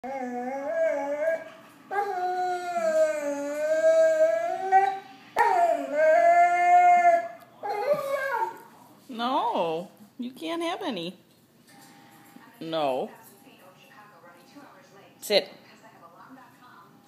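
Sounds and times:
dog howling: 0.0 - 8.7.

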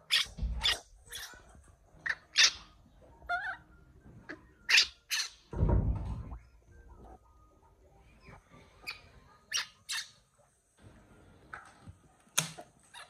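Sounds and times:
baby monkey squeaking: 0.0 - 1.4, 2.0 - 3.6, 4.3 - 5.5, 8.8 - 10.2
low thump: 5.6 - 6.4.

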